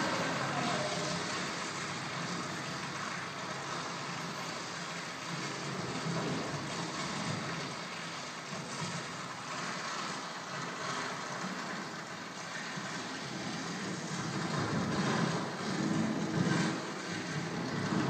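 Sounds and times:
rumbling hissing drone: 0:00.0 - 0:07.9.

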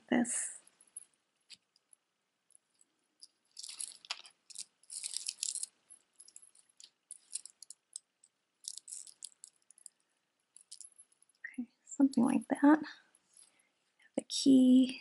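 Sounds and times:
metal chain jingling: 0:02.7 - 0:07.8, 0:08.6 - 0:10.0, 0:10.6 - 0:11.4.

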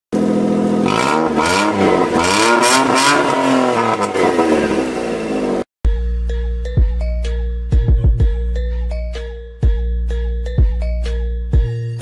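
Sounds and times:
car engine revving: 0:00.2 - 0:05.7.

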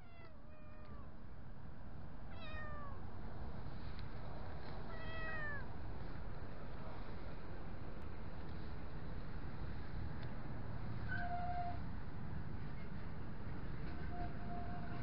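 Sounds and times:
cat meowing: 0:00.0 - 0:01.1, 0:02.3 - 0:03.0, 0:04.9 - 0:05.7.

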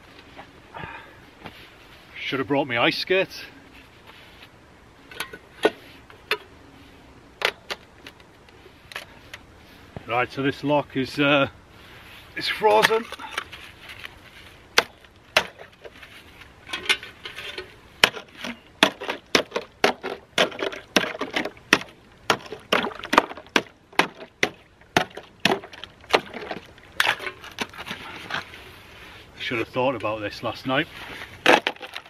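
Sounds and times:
ice cracking under blows: 0:31.2 - 0:32.0.

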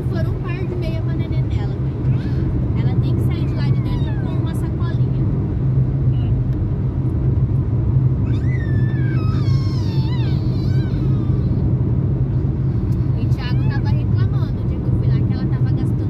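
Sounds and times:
car driving rumble: 0:00.0 - 0:16.0
high falling cries: 0:08.2 - 0:11.6.

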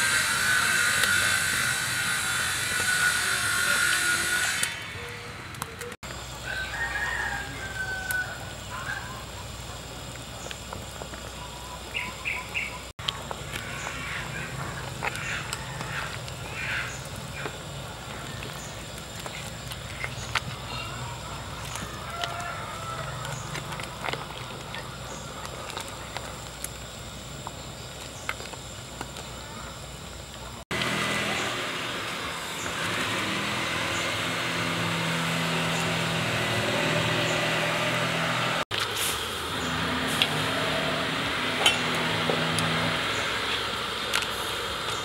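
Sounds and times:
rooster crowing: 0:06.4 - 0:09.2, 0:15.3 - 0:16.2, 0:20.8 - 0:23.6.

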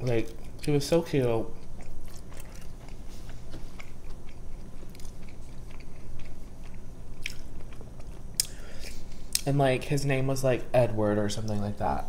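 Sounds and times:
chewing mouth clicks and smacks: 0:01.6 - 0:09.4.

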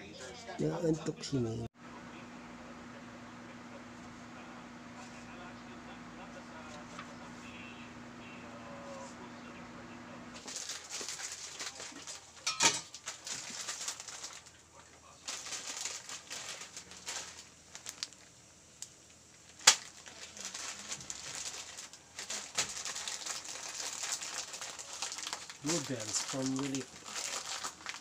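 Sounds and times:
plastic packet rustling: 0:10.4 - 0:14.6, 0:15.2 - 0:18.4, 0:19.4 - 0:28.0
aluminium cookware clinking: 0:12.4 - 0:13.0.

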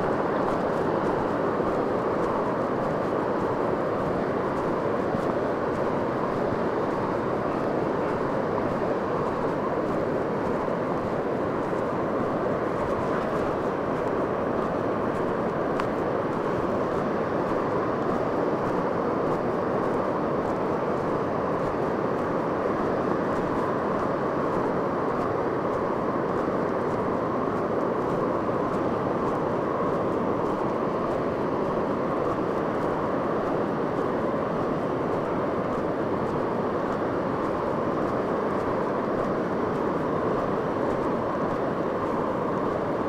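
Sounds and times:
ocean surf roaring: 0:00.0 - 0:43.0.

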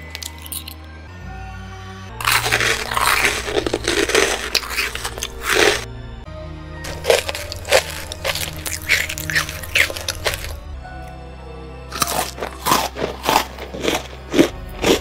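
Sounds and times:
crunchy chewing: 0:00.0 - 0:00.8, 0:02.2 - 0:05.9, 0:06.8 - 0:10.6, 0:11.9 - 0:15.0
background music: 0:00.0 - 0:15.0.

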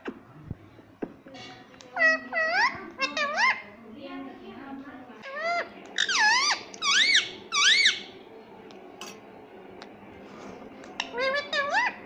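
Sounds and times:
parrot squeaky calls: 0:02.0 - 0:03.6, 0:05.2 - 0:08.1, 0:11.0 - 0:12.0.

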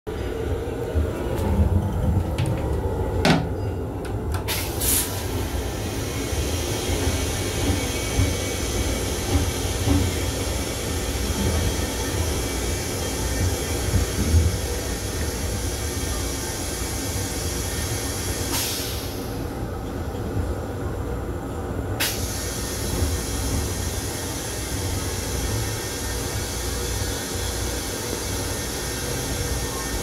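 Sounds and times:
train rumble: 0:00.1 - 0:30.0.

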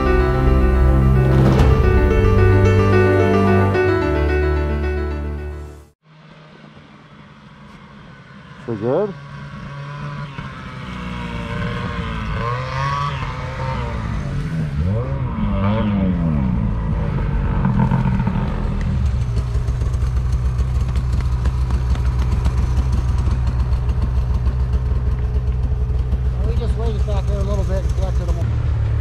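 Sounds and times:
snowmobile engine revving and idling: 0:08.5 - 0:29.0.

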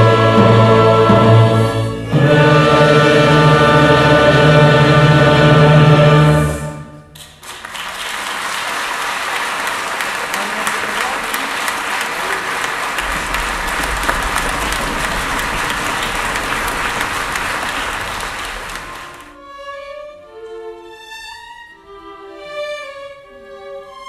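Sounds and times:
soft orchestral strings music: 0:00.0 - 0:07.2, 0:13.0 - 0:24.0
audience applauding: 0:07.2 - 0:19.4.

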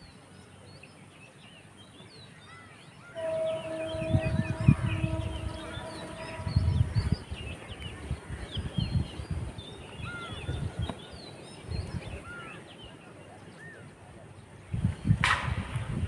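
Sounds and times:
small birds chirping: 0:00.0 - 0:15.2
low rumbles: 0:03.2 - 0:09.4.

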